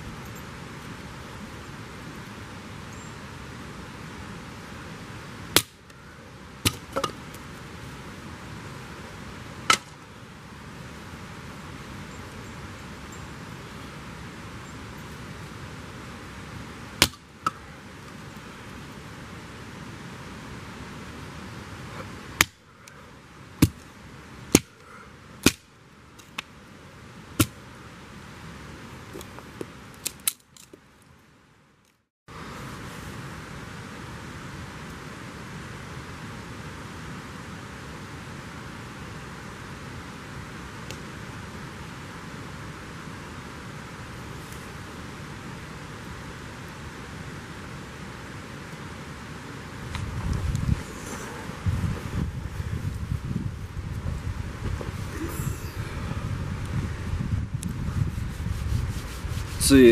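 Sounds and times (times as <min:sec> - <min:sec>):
steady background hiss: 0:00.0 - 0:59.9
firewood chopping strikes: 0:05.5 - 0:05.8, 0:06.6 - 0:07.2, 0:09.7 - 0:10.0, 0:17.0 - 0:17.6, 0:22.4 - 0:22.6, 0:23.6 - 0:23.8, 0:24.5 - 0:24.8, 0:25.4 - 0:25.6, 0:27.4 - 0:27.6.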